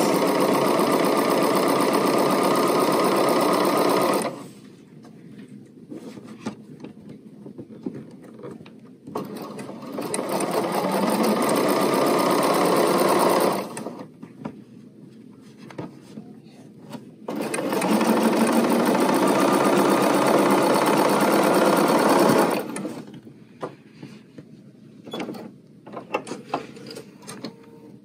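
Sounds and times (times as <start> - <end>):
sewing machine stitching: 0.0 - 4.5, 9.1 - 14.1, 17.3 - 23.1.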